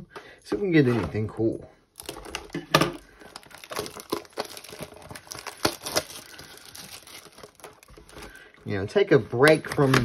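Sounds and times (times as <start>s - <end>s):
plastic wrap crinkling and tearing: 1.9s - 9.0s.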